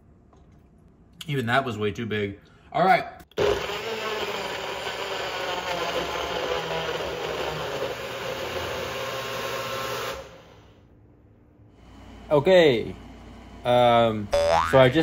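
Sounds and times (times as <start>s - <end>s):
blender running: 3.4s - 10.6s.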